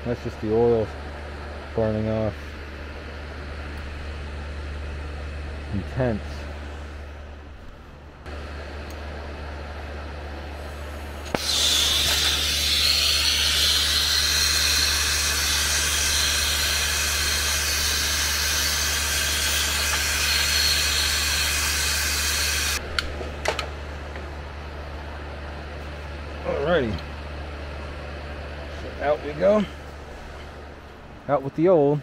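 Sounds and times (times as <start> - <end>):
torch flame hissing: 10.5 - 22.8.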